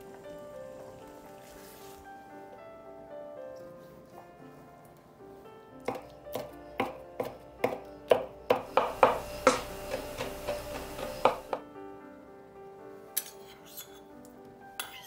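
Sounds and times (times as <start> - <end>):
soft background music: 0.0 - 15.0
knife chopping on wooden board: 5.9 - 11.6.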